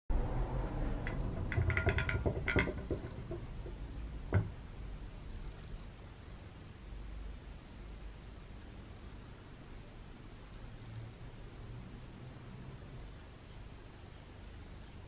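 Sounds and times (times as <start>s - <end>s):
knock on wooden bench: 1.0s - 4.6s.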